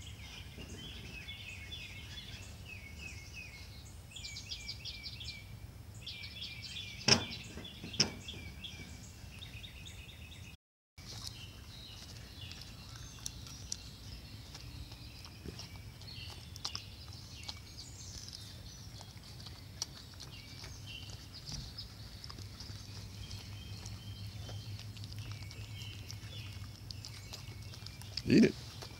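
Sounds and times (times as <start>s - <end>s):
birds chirping: 0.0s - 28.9s
dog chewing raw potato: 11.0s - 28.9s.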